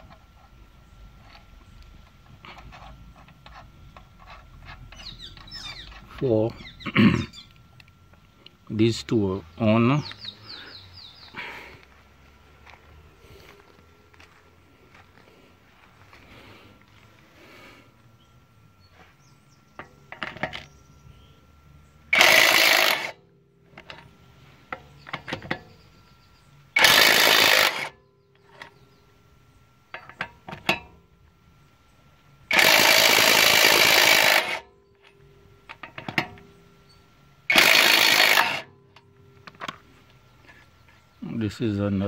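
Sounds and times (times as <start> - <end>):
impact wrench hammering: 22.1 - 23.2, 26.8 - 27.9, 32.5 - 34.6, 37.5 - 38.8.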